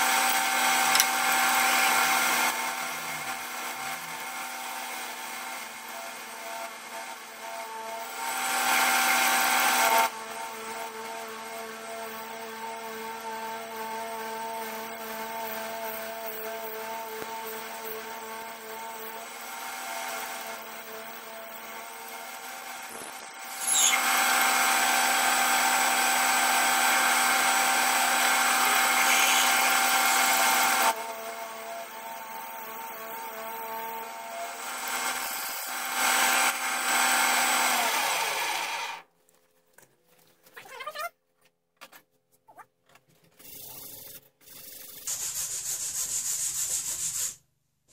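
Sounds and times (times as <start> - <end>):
drill boring into brass: 17.6 - 39.0
metal lathe whine: 23.2 - 30.9.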